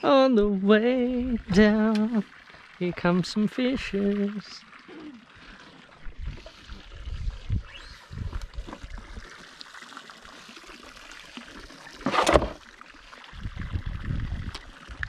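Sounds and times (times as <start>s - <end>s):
water lapping against boat hull: 0.0s - 15.0s
water splash: 7.6s - 13.4s.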